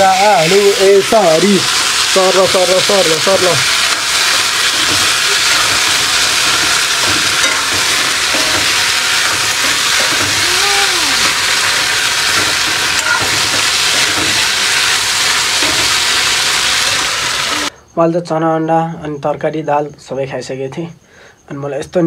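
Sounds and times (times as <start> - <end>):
chickpeas and potatoes sizzling: 0.0 - 17.7
metal spatula stirring: 3.9 - 10.4.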